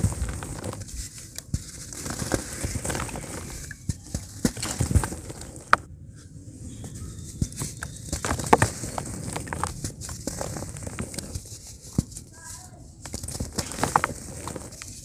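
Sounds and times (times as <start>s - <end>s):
cement grit pattering: 0.0s - 5.8s, 6.9s - 15.0s
lumps cracking: 7.6s - 12.2s, 13.0s - 15.0s.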